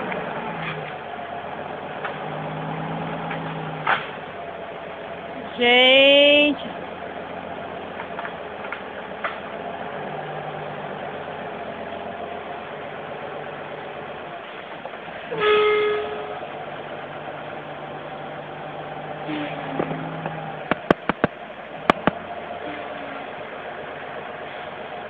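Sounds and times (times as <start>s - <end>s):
heavy truck engine running: 0.0s - 25.0s
loud truck horn blast: 15.3s - 16.6s, 22.6s - 23.3s.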